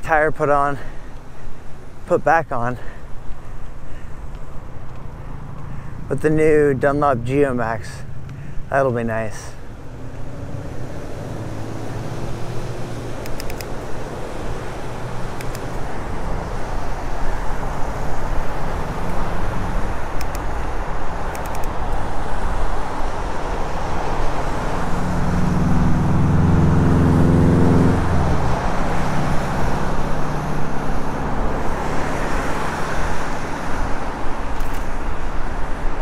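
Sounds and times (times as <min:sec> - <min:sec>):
rushing road noise from bike: 0:00.0 - 0:36.0
motor vehicle passing close: 0:09.7 - 0:36.0.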